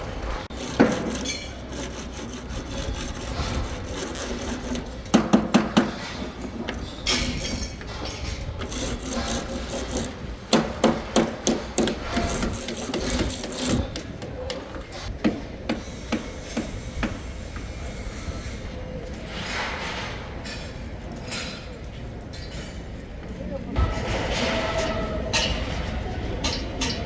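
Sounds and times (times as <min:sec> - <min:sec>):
hammering knocks: 0:07.2 - 0:14.6.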